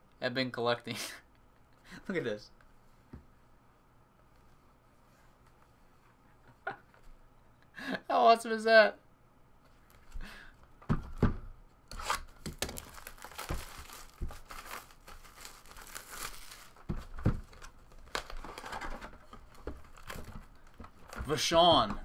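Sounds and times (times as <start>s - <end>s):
plastic shrink wrap tearing: 11.9s - 18.9s.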